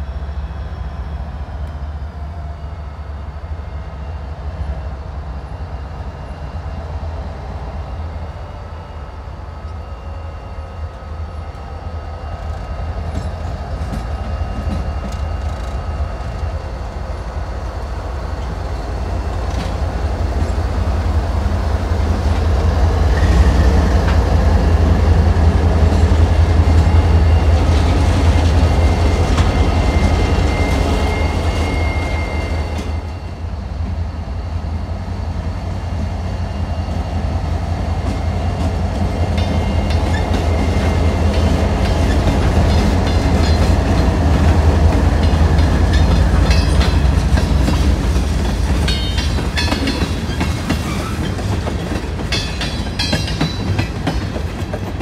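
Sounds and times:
diesel locomotive engine drone: 0.0 - 55.0
train wheels clicking over rail joints: 12.4 - 16.5, 37.9 - 55.0.

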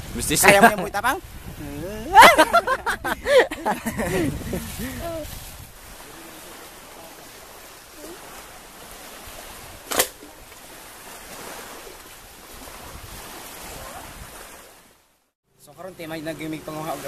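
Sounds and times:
small surf waves: 0.0 - 17.0
wind: 0.0 - 17.0
sharp knock: 9.9 - 10.2.

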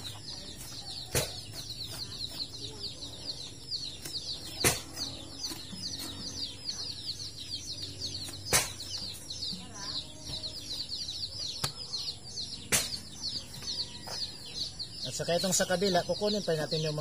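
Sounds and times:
birds chirping: 0.0 - 17.0
sharp knocks: 4.5 - 5.1, 8.5 - 8.9.

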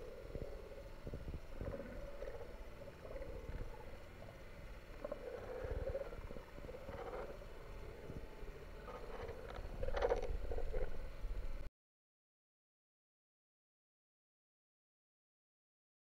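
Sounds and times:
muffled underwater water movement: 0.0 - 11.7.

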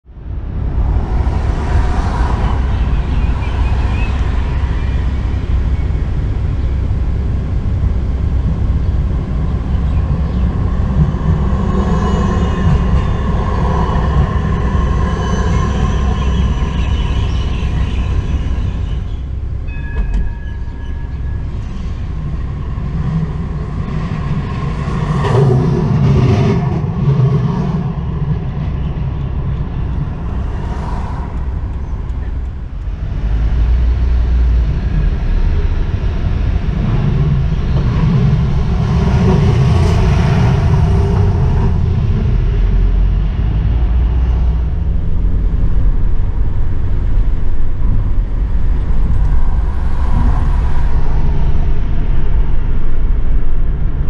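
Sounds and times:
traffic and trams rumbling: 0.0 - 54.0
high electric whine: 0.2 - 27.0
tram passing with knocks: 0.5 - 54.0.

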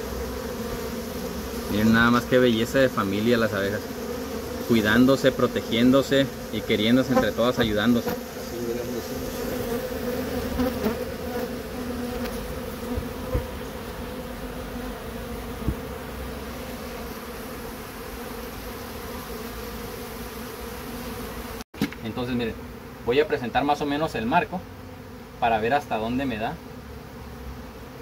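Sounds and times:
honeybees buzzing: 0.0 - 28.0.

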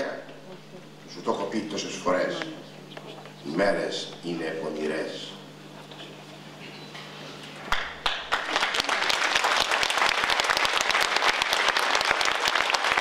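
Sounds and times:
audience applause: 7.7 - 13.0
scattered claps: 7.7 - 13.0.

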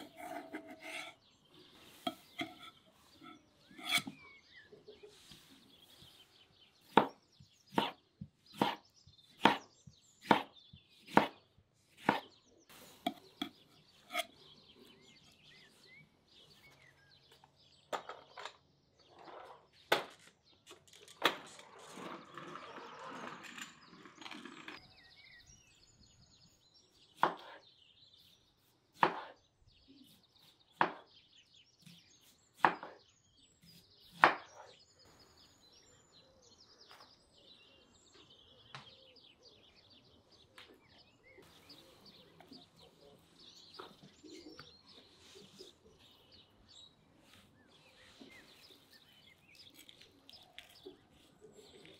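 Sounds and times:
knife slicing tomatoes on plate: 0.0 - 1.2, 2.0 - 4.2, 10.2 - 11.4, 12.9 - 14.4
birds chirping: 0.0 - 51.9
kick scooter rolling on concrete: 20.8 - 25.1.

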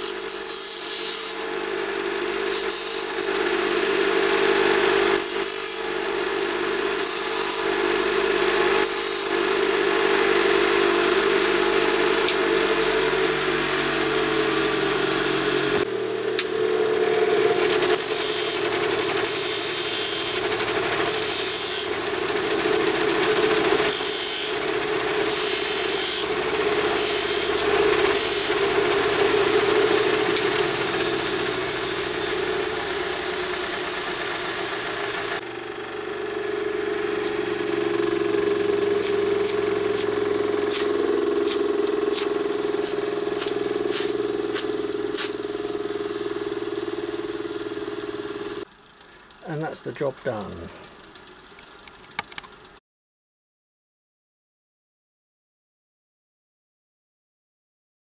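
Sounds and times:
steel grinding on wheel: 0.0 - 15.7, 17.4 - 35.4, 36.5 - 48.6
bench grinder humming: 0.0 - 51.6.

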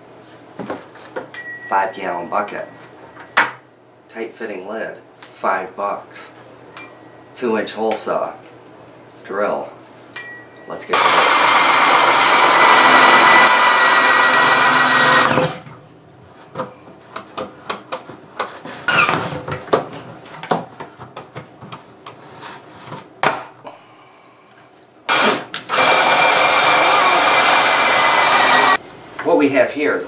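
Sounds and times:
drill hole saw whining: 10.9 - 15.6, 25.1 - 28.8.

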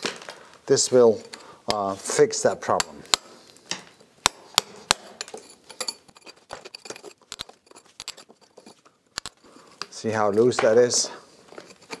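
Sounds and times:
chisel chipping mortar: 1.7 - 3.3, 4.2 - 12.0.

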